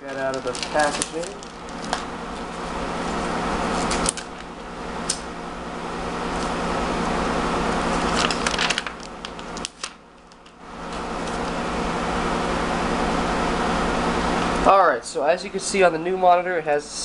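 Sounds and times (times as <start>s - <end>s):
plastic packaging rustling: 0.0s - 4.5s, 7.8s - 11.5s.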